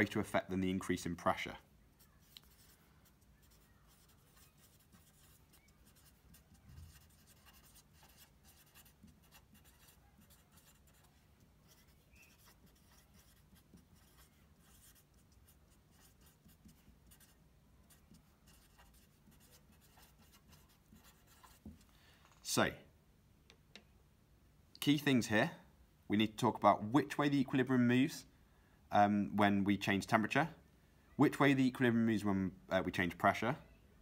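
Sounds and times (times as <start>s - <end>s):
marker pen scratching on paper: 2.0s - 21.8s.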